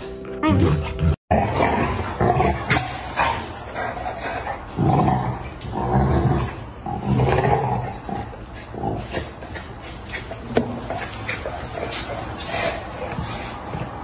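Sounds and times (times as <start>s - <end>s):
dog growling: 1.0s - 10.0s.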